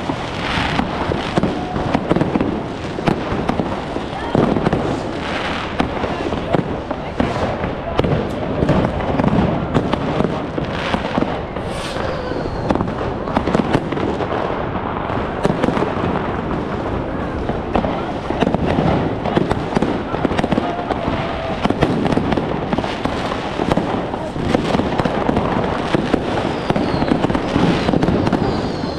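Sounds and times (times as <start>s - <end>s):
fireworks bangs and crackles: 0.0s - 28.9s
firework whistle: 10.7s - 13.9s, 25.3s - 28.9s.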